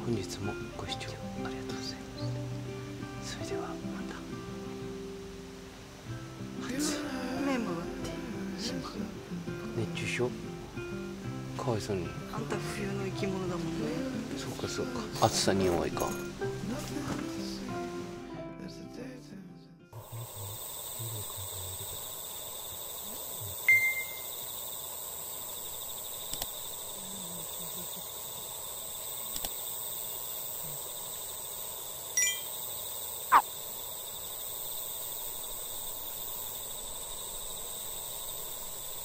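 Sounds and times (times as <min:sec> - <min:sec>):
insect chorus: 0:00.0 - 0:18.2, 0:20.0 - 0:39.0
short chirps and calls: 0:21.8 - 0:24.7, 0:32.2 - 0:33.5.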